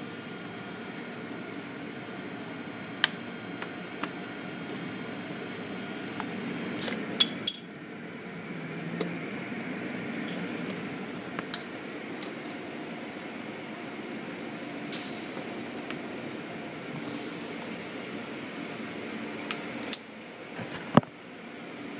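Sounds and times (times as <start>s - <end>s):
muffled car wash spray and machinery: 0.0s - 21.9s.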